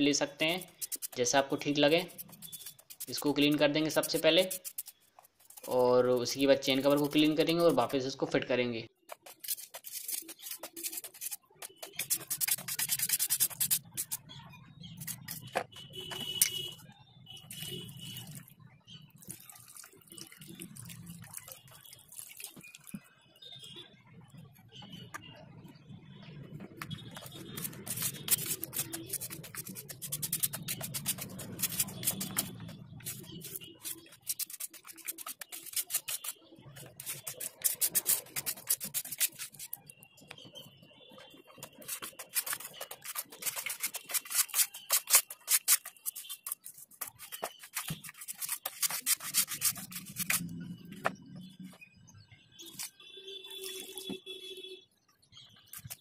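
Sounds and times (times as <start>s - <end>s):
brush scrubbing metal part: 0.6s - 1.3s, 1.9s - 5.8s, 9.1s - 14.4s, 15.0s - 15.6s, 27.2s - 39.8s, 41.6s - 50.5s
liquid pouring and splashing: 19.2s - 23.1s.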